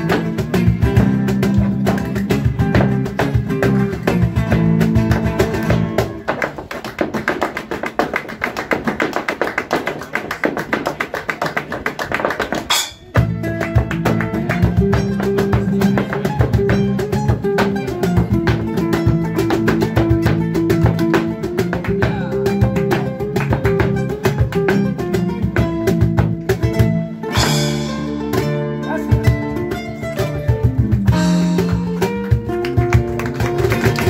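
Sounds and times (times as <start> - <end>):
bass and guitar: 0.0 - 8.7, 12.5 - 34.0
shoes stamping on wooden board: 0.0 - 26.8.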